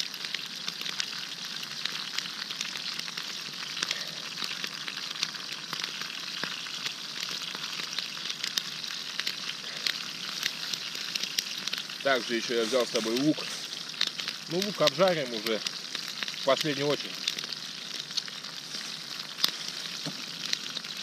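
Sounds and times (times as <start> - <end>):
fish sizzling in oil: 0.0 - 21.0
oil crackling and popping: 0.0 - 21.0.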